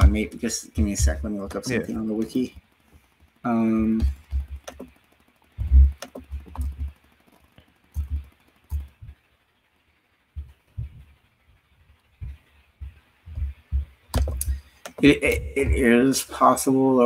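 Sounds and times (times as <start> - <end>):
computer keyboard typing: 0.0 - 9.2, 12.2 - 16.0.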